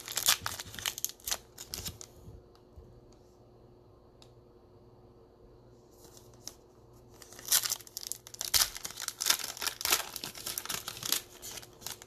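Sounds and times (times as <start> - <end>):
foil wrapper tearing: 0.0 - 2.1, 7.2 - 12.0.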